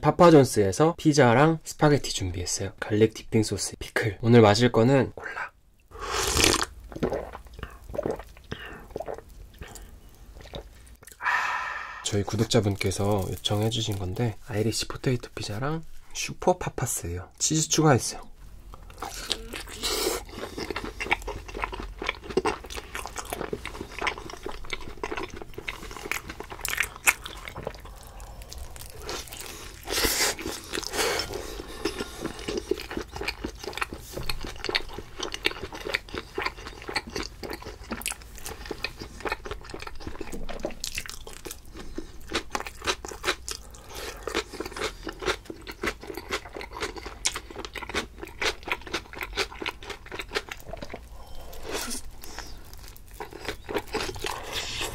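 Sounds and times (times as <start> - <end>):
wet mouth sounds: 5.9 - 12.0, 18.7 - 24.4, 38.9 - 54.9
crunchy chewing: 18.8 - 54.9.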